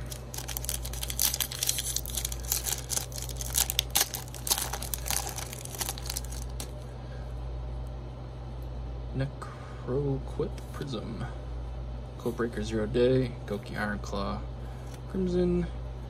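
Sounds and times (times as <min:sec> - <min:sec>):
foil wrapper crinkling and tearing: 0:00.0 - 0:06.8
air conditioner hum: 0:00.0 - 0:16.0.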